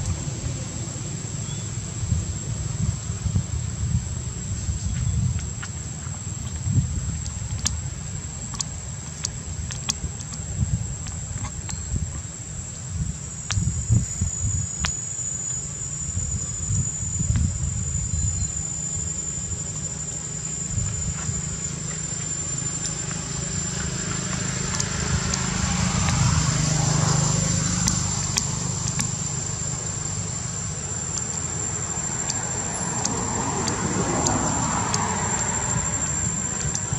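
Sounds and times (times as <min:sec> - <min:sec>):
steady high-pitched whine: 0:00.0 - 0:36.9
motor vehicle passing: 0:20.7 - 0:36.9.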